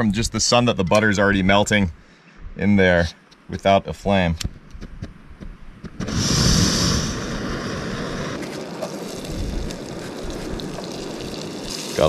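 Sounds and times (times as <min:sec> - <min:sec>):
gas burner hissing: 0:05.8 - 0:12.0
gas stove igniting whoosh: 0:05.8 - 0:12.0.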